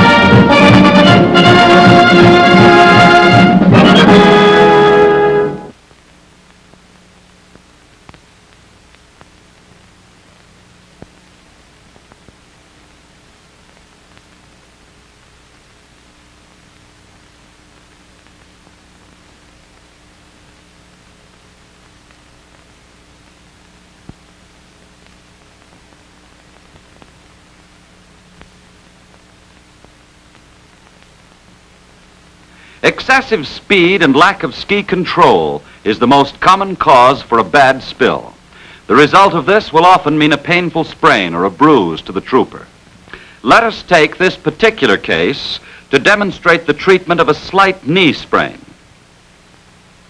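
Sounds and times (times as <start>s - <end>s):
faint hum: 0.0s - 50.0s
steady hiss: 4.2s - 50.0s
clicks and crackles: 5.8s - 32.7s
clicks and pops: 7.5s - 9.8s.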